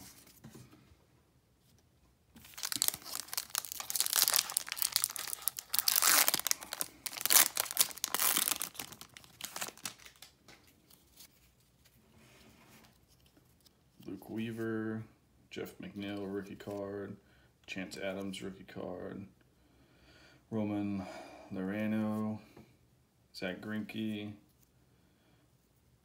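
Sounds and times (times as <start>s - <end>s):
foil wrapper crinkling and tearing: 2.4s - 10.4s.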